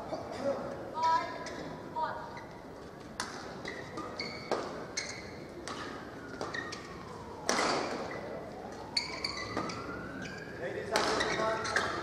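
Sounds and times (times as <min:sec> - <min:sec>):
rackets hitting shuttlecock: 0:03.1 - 0:04.8, 0:05.6 - 0:08.1, 0:10.9 - 0:12.0.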